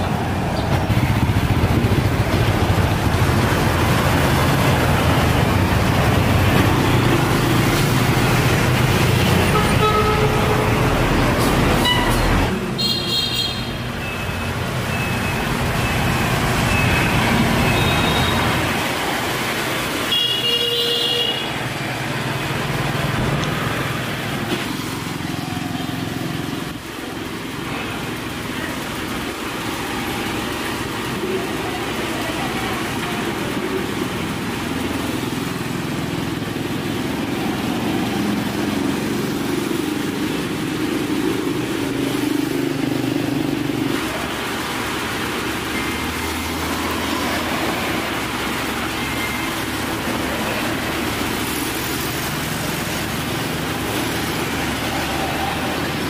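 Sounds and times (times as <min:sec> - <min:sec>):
vehicle engines rumbling: 0:00.0 - 0:56.0
car horn toots: 0:09.5 - 0:10.8, 0:11.8 - 0:13.8.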